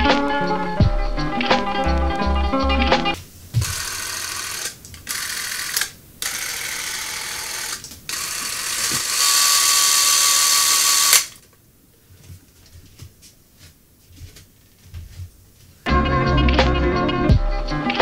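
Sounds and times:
movie camera mechanism whirring: 3.6s - 11.4s.

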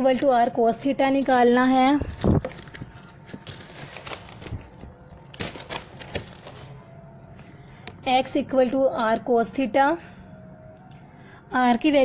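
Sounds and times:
paper rustling: 2.0s - 6.9s.

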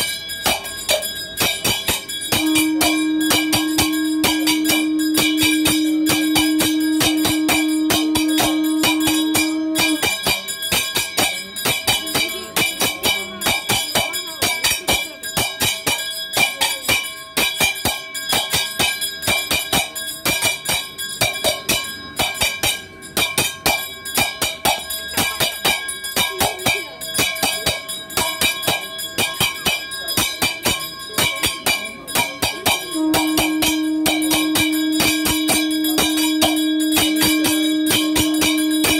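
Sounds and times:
ritual bells and percussion: 0.0s - 38.9s
steady held tone: 0.0s - 38.9s.

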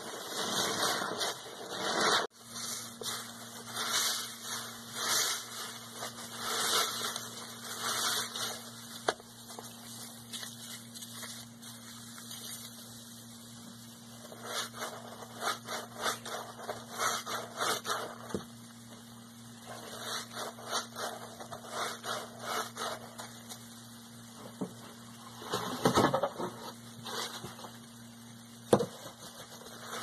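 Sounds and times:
soapy sponges squelching in water: 0.2s - 12.9s.

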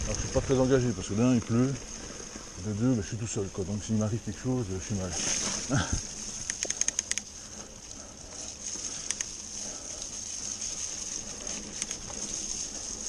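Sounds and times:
mountain bike tyre and drivetrain hiss: 0.0s - 13.0s
sharp bike clicks: 6.2s - 13.0s.

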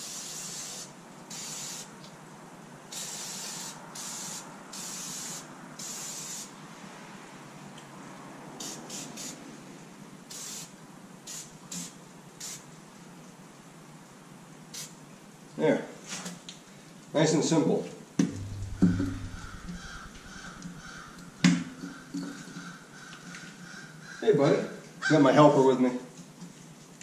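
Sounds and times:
aerosol can spraying: 0.0s - 1.9s, 2.9s - 6.5s, 8.6s - 9.4s, 11.3s - 12.6s.

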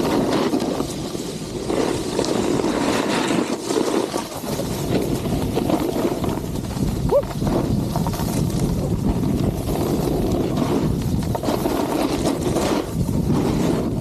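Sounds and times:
snowboard scraping on snow: 0.0s - 14.0s
wind rushing over microphone: 0.0s - 14.0s.

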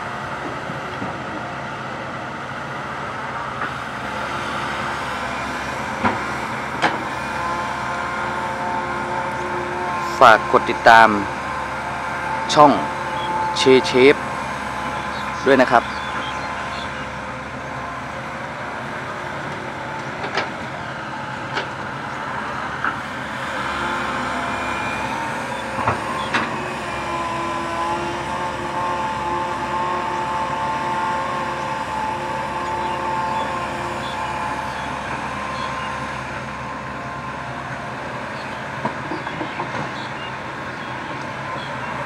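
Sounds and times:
excavator diesel engine: 0.0s - 42.0s
hydraulic whine: 0.0s - 42.0s.

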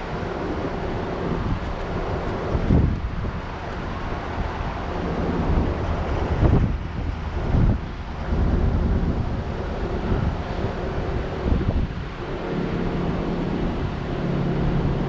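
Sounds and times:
engine and road noise: 0.0s - 15.0s
wind buffeting microphone: 0.0s - 15.0s.

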